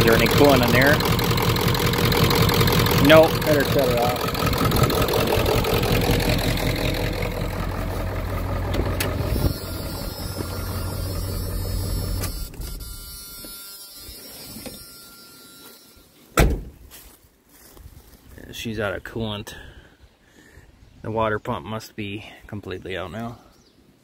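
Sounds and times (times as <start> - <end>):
diesel engine idling and stopping: 0.0 - 13.8
loud thump: 16.4 - 16.8.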